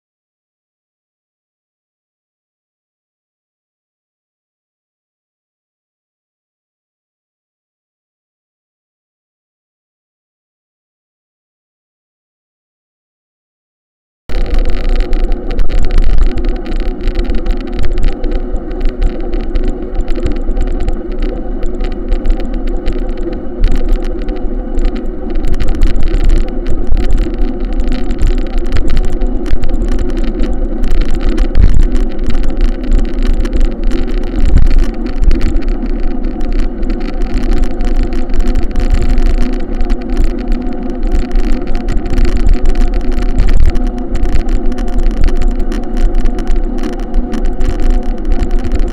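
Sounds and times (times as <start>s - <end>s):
rough buffeting noise: 14.3s - 48.9s.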